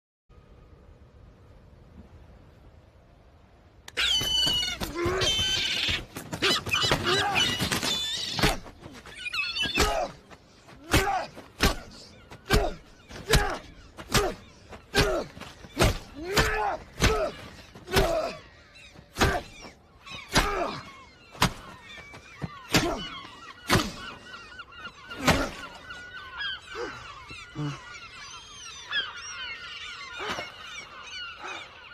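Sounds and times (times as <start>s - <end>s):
shouting: 3.9s - 21.8s.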